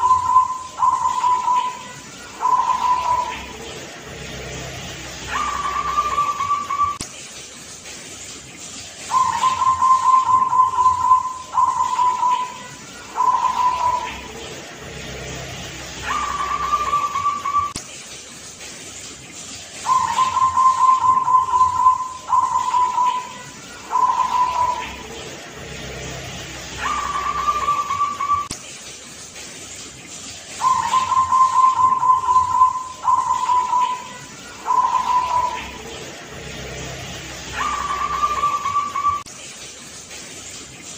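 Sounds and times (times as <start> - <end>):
dove cooing: 0.0 - 4.5, 5.2 - 7.0, 9.1 - 14.6, 16.0 - 17.7, 19.8 - 25.2, 26.8 - 28.5, 30.6 - 36.0, 37.5 - 39.2.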